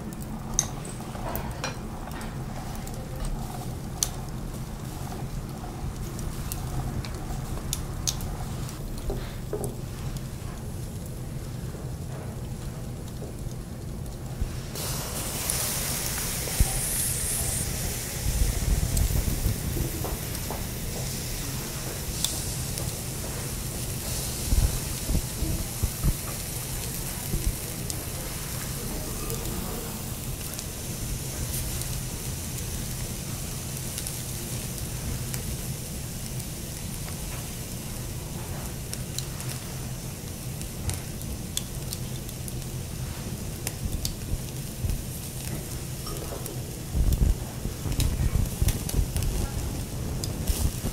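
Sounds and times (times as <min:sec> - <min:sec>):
juices crackling on coals: 0:00.0 - 0:50.9
steak sizzling on a grill: 0:00.0 - 0:50.9.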